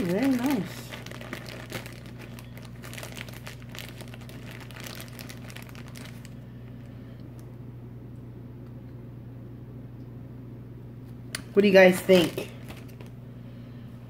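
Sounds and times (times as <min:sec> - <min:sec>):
plastic packaging crinkling: 0:00.0 - 0:06.8, 0:12.0 - 0:13.2
steady low hum: 0:00.0 - 0:14.0.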